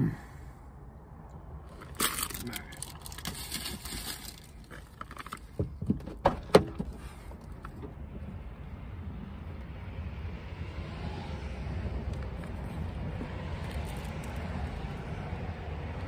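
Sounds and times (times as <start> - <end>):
handling clicks and knocks: 3.1 - 7.9.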